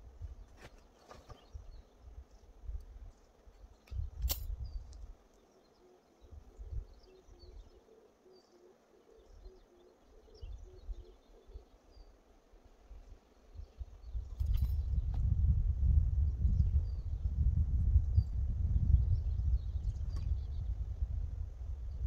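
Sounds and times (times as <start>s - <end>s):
faint bird chirps: 3.5s - 12.3s.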